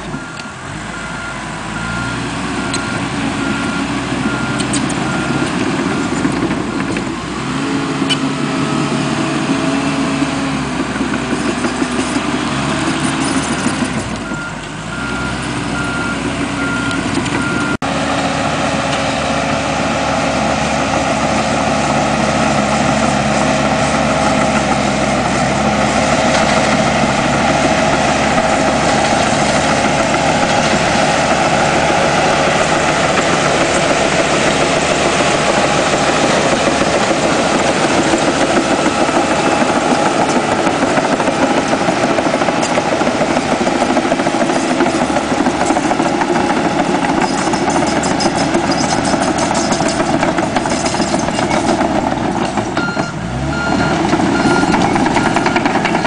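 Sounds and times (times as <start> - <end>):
reversing alarm beeping: 0.0 - 6.4, 13.1 - 17.8, 52.8 - 56.0
dozer diesel engine running: 0.0 - 56.0.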